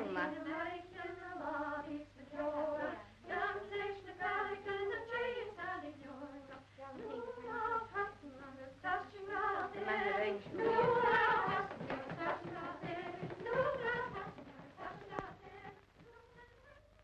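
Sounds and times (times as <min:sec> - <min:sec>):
women singing work song: 0:00.0 - 0:16.8.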